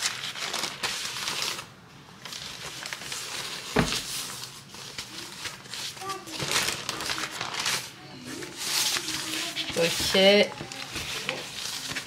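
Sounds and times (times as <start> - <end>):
baking paper crinkling: 0.0 - 12.0
thump on countertop: 3.8 - 4.0.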